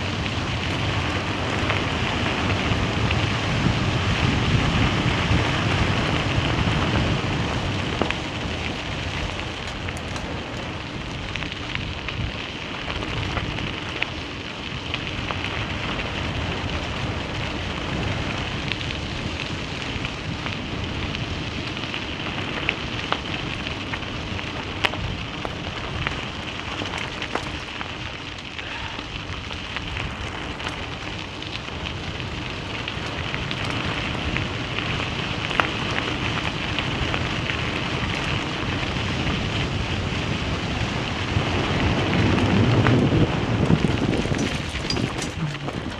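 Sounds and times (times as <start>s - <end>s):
tyres rolling over gravel: 0.0s - 45.9s
stones pinging: 44.3s - 45.9s.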